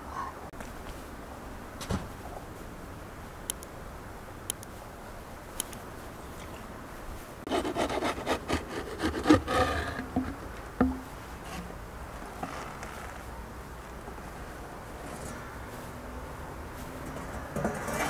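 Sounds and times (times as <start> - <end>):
sharp clicks: 3.5 - 3.7
wooden peel scraping oven floor: 7.5 - 10.8
knock: 10.2 - 11.1.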